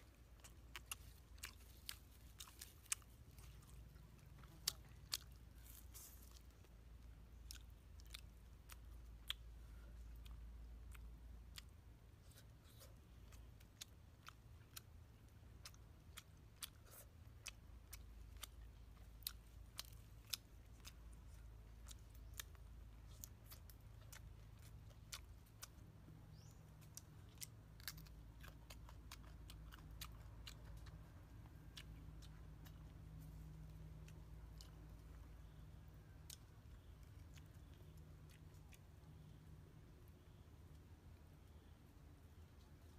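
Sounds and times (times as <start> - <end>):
crunchy chewing: 0.0 - 42.9.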